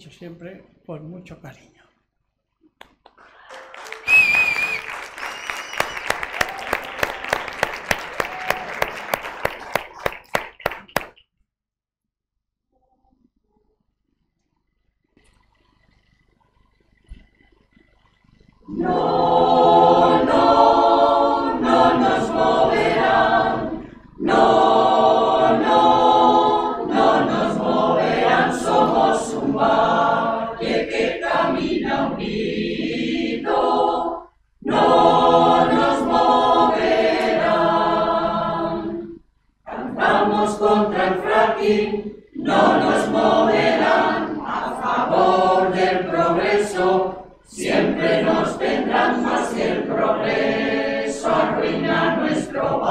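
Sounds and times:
mixed choir singing a cappella: 0:18.6 - 0:52.9.

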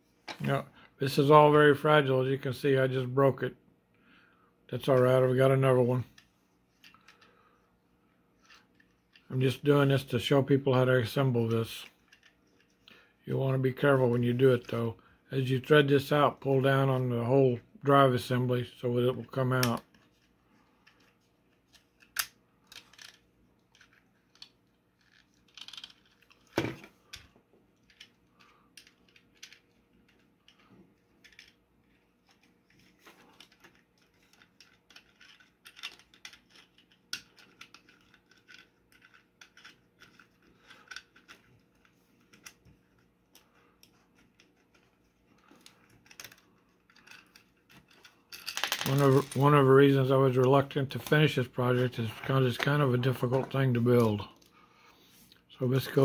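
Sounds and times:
plastic parts clicking and rattling: 0:11.8 - 0:12.9, 0:19.5 - 0:49.6.

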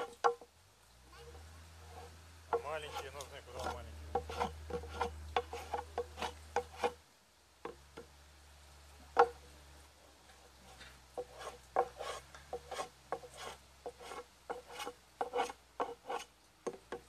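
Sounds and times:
rasping strokes on wooden plank: 0:01.2 - 0:07.0, 0:10.3 - 0:17.0.

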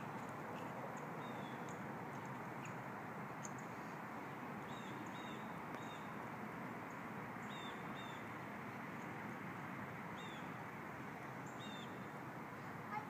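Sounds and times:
outdoor background hum: 0:00.0 - 0:13.0.

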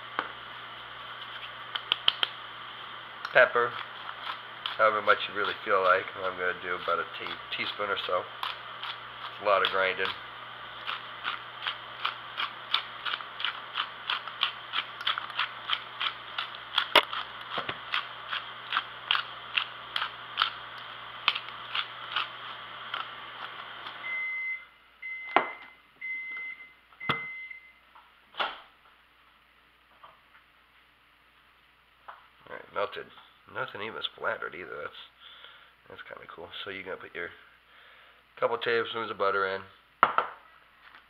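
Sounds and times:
microwave oven humming: 0:00.0 - 0:28.2
microwave beeps: 0:24.0 - 0:27.9.

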